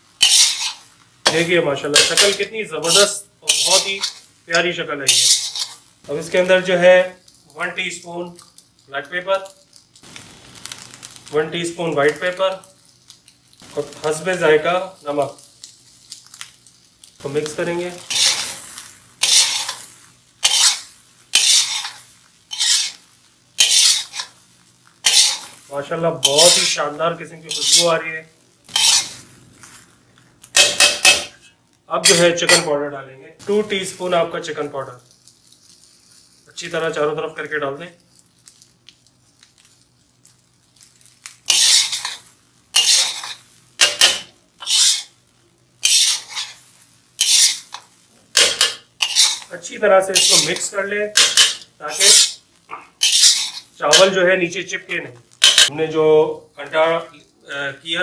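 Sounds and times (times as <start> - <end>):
metal spatula scraping wok: 0.2 - 6.8, 17.4 - 24.4, 25.0 - 25.6, 26.2 - 26.8, 27.4 - 28.0, 28.7 - 29.8, 30.6 - 31.4, 32.0 - 32.7, 41.5 - 45.2, 45.8 - 52.4, 53.0 - 54.3, 55.4 - 55.7.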